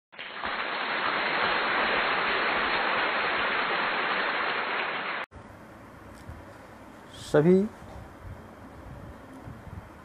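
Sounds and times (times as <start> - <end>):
steady noise hiss: 0.2 - 10.0.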